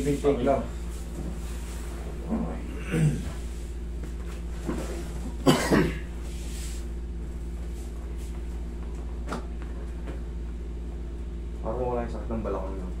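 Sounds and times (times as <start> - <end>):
low room hum: 0.0 - 13.0
person coughing: 2.7 - 3.4, 5.4 - 6.1.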